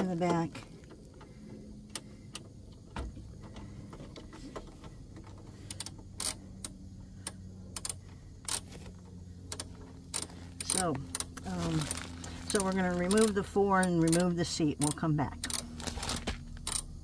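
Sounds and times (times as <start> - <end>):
low steady hum: 0.0 - 17.0
ratchet wrench clicking: 5.6 - 8.7, 9.4 - 11.4, 13.2 - 15.7, 16.6 - 17.0.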